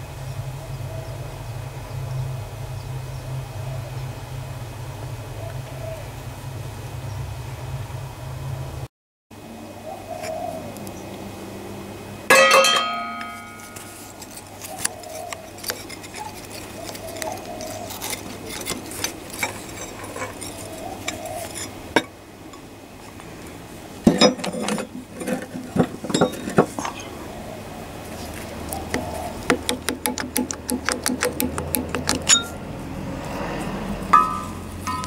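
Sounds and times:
loud ringing metal clang: 12.3s - 14.0s, 34.1s - 35.0s
metal tools clinking and clanking: 12.3s - 14.7s, 18.0s - 22.6s, 24.0s - 27.0s, 32.0s - 32.6s, 34.1s - 35.0s.

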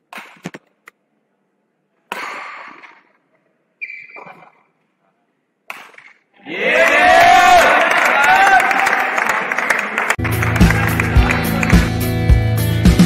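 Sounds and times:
racket striking shuttlecock: 0.1s - 0.7s, 2.1s - 3.1s, 5.7s - 6.3s
shoe squeak: 3.8s - 4.8s.

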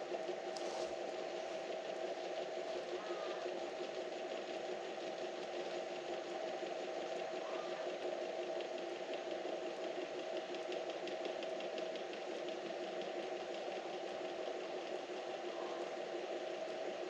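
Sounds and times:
mechanical hum: 0.0s - 17.0s.

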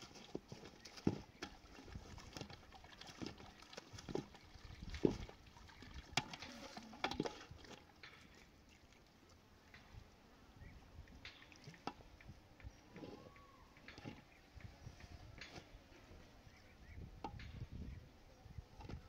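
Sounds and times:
irregular knocks and thuds: 4.0s - 5.4s.

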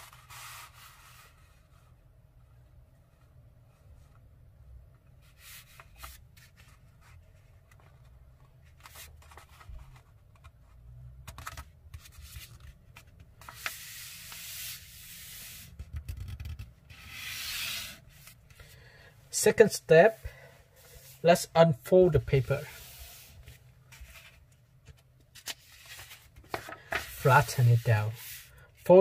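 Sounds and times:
hand rubbing paper crease: 13.4s - 18.6s, 22.1s - 24.5s, 25.4s - 29.0s.

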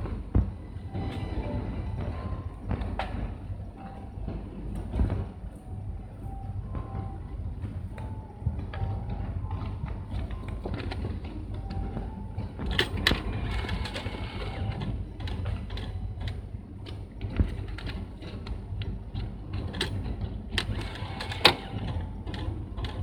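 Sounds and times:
steady low rumble: 0.0s - 20.8s
vending machine mechanical whirring: 0.0s - 23.0s.

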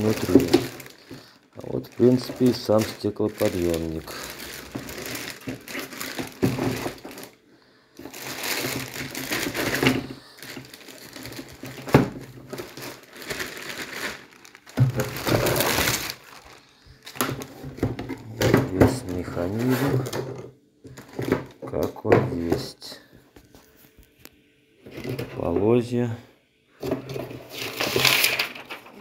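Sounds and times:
plastic bag crinkling: 0.0s - 7.4s, 8.0s - 20.1s, 20.9s - 21.6s, 27.4s - 29.0s.

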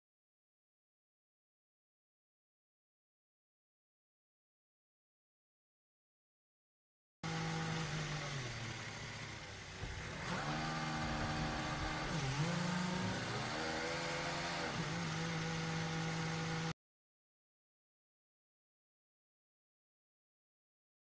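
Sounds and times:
race car engine on speed limiter: 7.2s - 16.8s.

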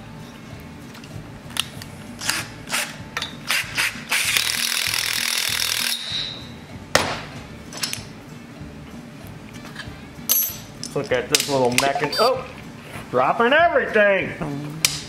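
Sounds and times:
cordless driver spinning: 3.5s - 6.0s.

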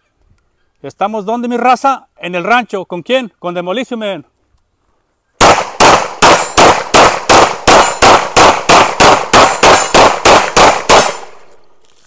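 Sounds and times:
rapid pistol shots: 5.4s - 11.4s.

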